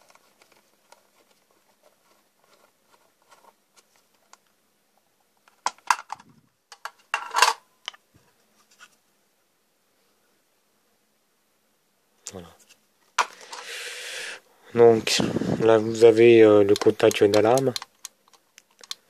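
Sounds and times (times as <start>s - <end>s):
plastic cover clicking off: 16.7s - 19.0s.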